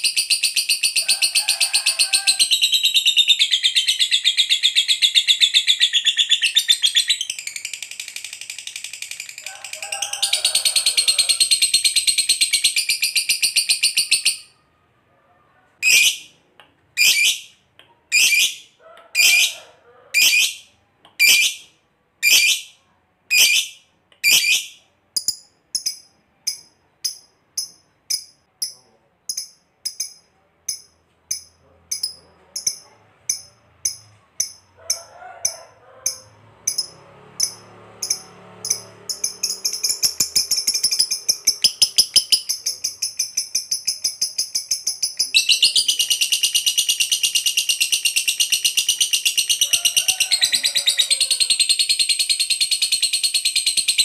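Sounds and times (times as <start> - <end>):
bird chattering trill: 0.0 - 14.5, 18.1 - 19.6, 20.2 - 20.6, 36.1 - 54.0
bird sharp chirps: 36.7 - 49.5.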